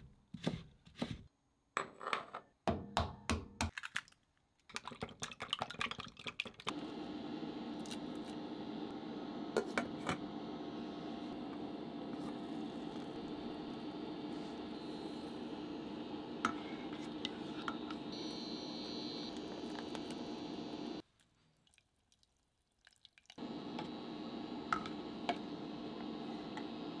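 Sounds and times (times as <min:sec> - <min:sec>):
water simmering in a saucepan: 0:21.0 - 0:23.4.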